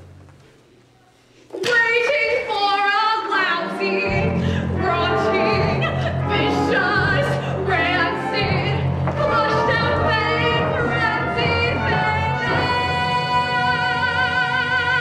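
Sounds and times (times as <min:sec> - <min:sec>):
woman singing with vibrato: 0:01.6 - 0:15.0
low band accompaniment: 0:03.8 - 0:14.9.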